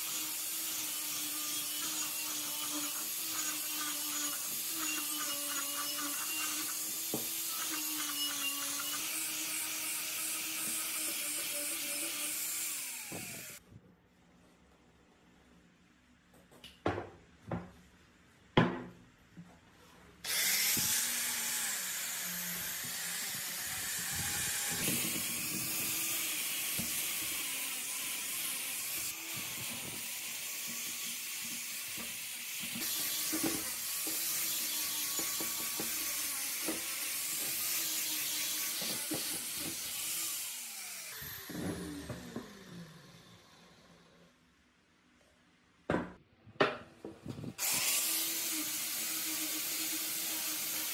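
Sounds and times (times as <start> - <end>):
angle grinder on steel: 0.0 - 13.6, 20.3 - 43.9, 47.6 - 50.9.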